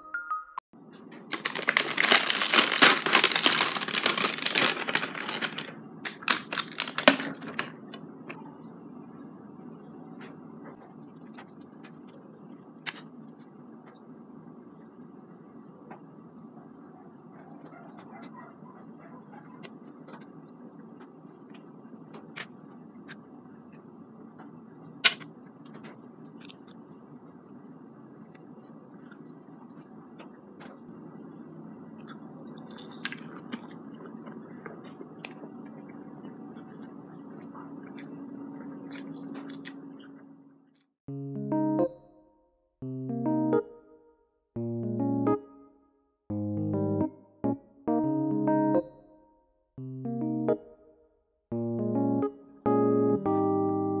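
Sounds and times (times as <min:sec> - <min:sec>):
steady low hum: 0:00.8 - 0:41.8
vegetables crinkling on cutting board: 0:01.2 - 0:07.7, 0:32.5 - 0:33.8
seaweed sheet crackling: 0:01.3 - 0:07.7.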